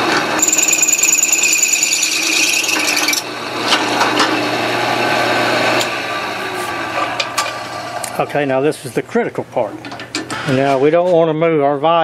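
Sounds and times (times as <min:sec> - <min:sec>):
drill bit squealing through steel: 0:00.4 - 0:03.3
drill press motor humming: 0:00.4 - 0:06.6.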